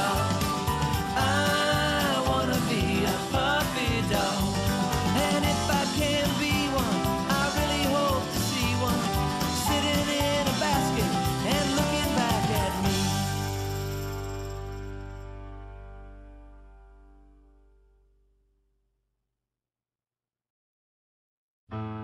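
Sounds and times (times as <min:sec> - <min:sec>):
upbeat country-rock song: 0:00.0 - 0:15.7.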